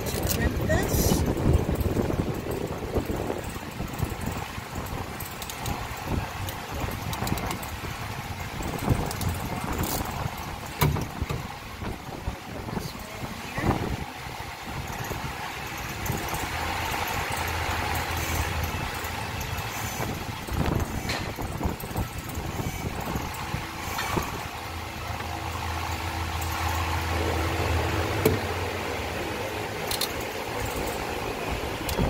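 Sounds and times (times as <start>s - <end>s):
hand tools clicking on wire: 0.0s - 11.4s, 14.8s - 27.1s, 29.8s - 32.0s
steady low hum: 0.0s - 32.0s.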